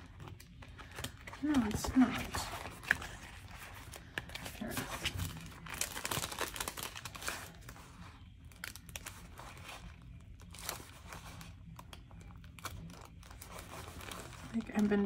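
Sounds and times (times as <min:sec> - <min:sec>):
paper rustling: 0:00.0 - 0:11.6.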